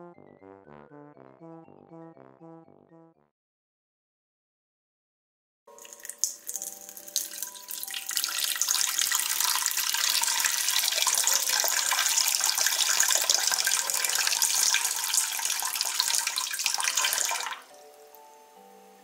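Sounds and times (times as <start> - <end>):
water pouring into steel bowl: 5.7 - 17.8
soft background music: 5.7 - 19.0.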